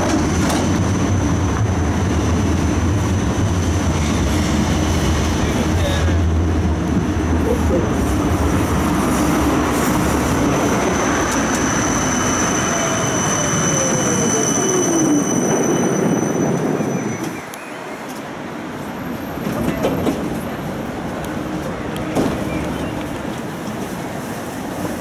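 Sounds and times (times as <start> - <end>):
tram rolling on rails: 0.0 - 25.0
high wheel squeal: 10.8 - 18.0.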